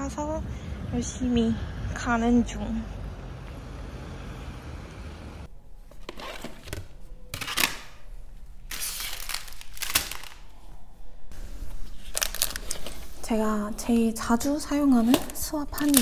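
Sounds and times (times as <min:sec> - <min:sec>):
street background noise: 0:00.0 - 0:06.0.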